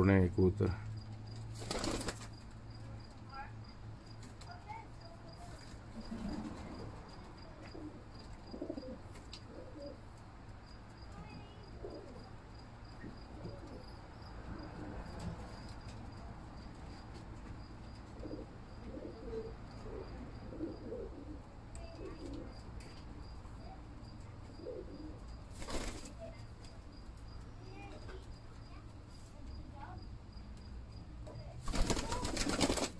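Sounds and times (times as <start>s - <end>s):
wings flapping: 1.3s - 2.6s, 25.5s - 26.4s, 31.6s - 32.9s
pigeons cooing: 5.9s - 10.1s, 11.7s - 12.4s, 13.1s - 15.2s, 18.0s - 22.7s, 24.5s - 25.8s.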